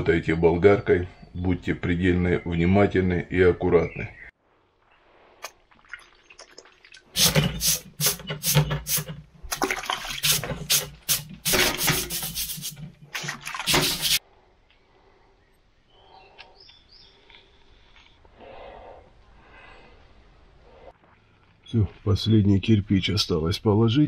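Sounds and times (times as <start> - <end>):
water sloshing in bucket: 5.4 - 14.2
wet sponge wiping bricks: 7.2 - 9.2, 10.2 - 14.2.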